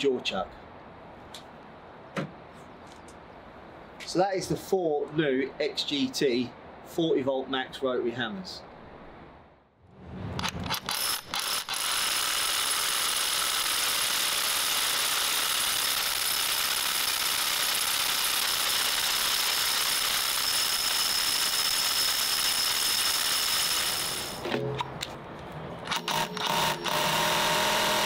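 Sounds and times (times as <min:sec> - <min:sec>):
rotary hammer drilling concrete: 0:10.4 - 0:24.4, 0:25.9 - 0:28.0.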